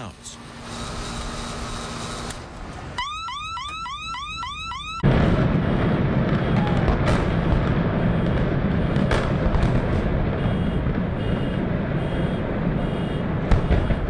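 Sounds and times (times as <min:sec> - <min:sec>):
alarm chirping: 0:03.0 - 0:05.0, 0:10.4 - 0:14.0
demolition rumble: 0:05.0 - 0:14.0.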